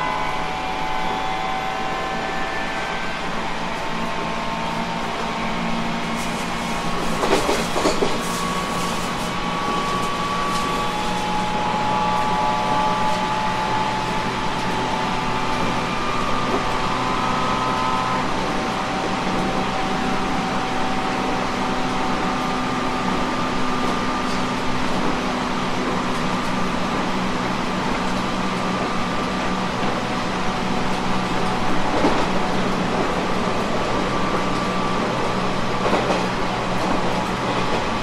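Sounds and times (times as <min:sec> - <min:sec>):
train running whir and rumble: 0:00.0 - 0:38.0.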